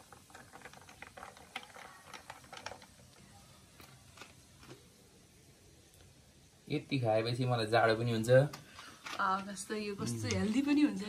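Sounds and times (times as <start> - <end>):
ice cubes clicking against glass: 0.0 - 3.2.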